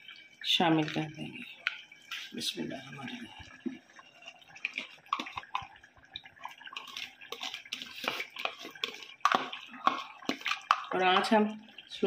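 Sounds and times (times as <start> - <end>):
spoon scraping plastic bowl: 4.6 - 5.7, 6.4 - 11.3.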